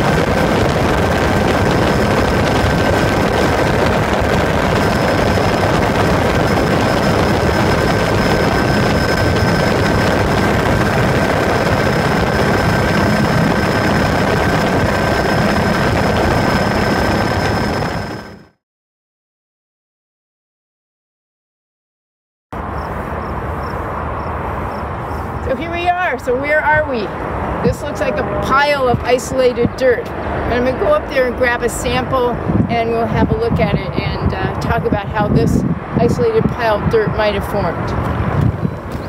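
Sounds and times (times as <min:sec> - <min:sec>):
helicopter rotor and engine din: 0:00.0 - 0:18.6, 0:22.6 - 0:39.0
thin high whine: 0:00.0 - 0:18.6.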